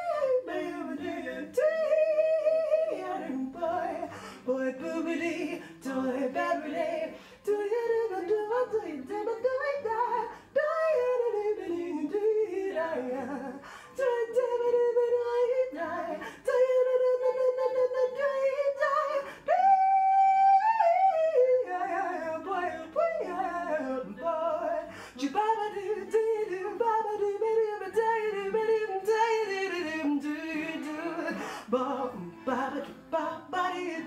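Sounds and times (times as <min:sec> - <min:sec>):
woman singing scat a cappella: 0:00.0 - 0:34.0.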